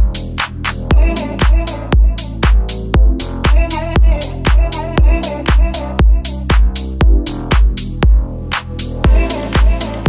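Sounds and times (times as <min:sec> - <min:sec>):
kick drum: 0:00.0 - 0:00.2, 0:00.9 - 0:08.3, 0:09.0 - 0:09.9
hi-hat ticks: 0:00.0 - 0:10.0.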